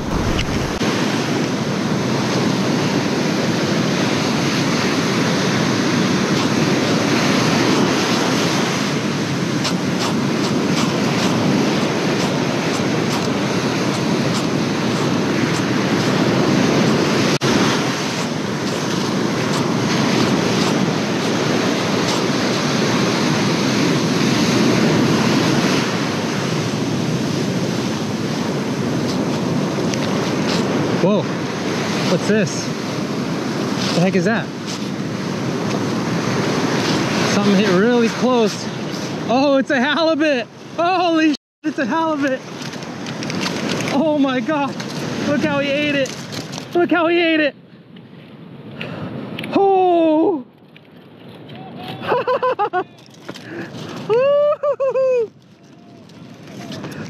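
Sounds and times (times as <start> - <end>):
wind buffeting microphone: 0.0 - 39.3
ocean surf breaking: 0.0 - 47.5.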